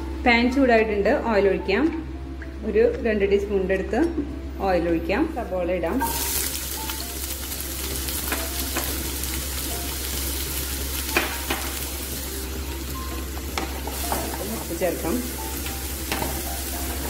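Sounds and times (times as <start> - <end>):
onions sizzling in hot oil: 6.0 - 17.0.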